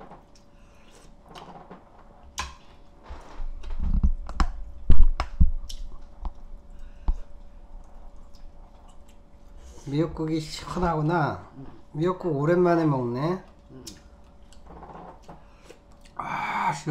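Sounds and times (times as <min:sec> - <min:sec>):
chewing: 0:05.6 - 0:09.9, 0:13.4 - 0:16.2.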